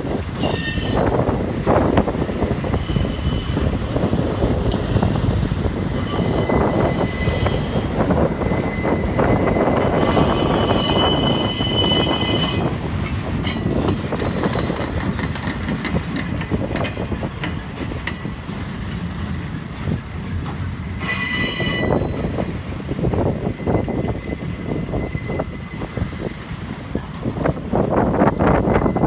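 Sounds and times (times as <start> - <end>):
train wheels rumbling on rail: 0.0 - 29.0
high wheel squeal: 0.4 - 1.3, 2.6 - 3.8, 5.8 - 13.8, 21.0 - 22.5, 23.3 - 27.6, 28.2 - 29.0.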